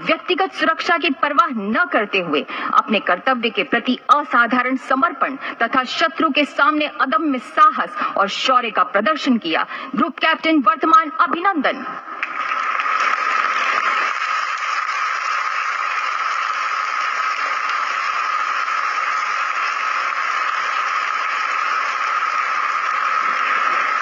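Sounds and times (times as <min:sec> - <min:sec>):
audience applauding: 0:12.2 - 0:24.0.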